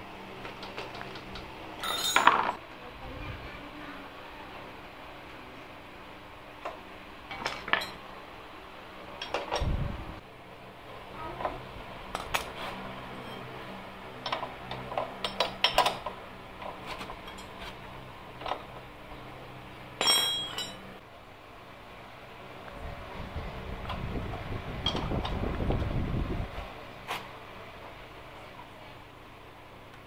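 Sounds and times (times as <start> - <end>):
spanner clinking on metal: 0.9 - 2.6, 20.0 - 20.8
ringing metal clank: 20.0 - 20.8.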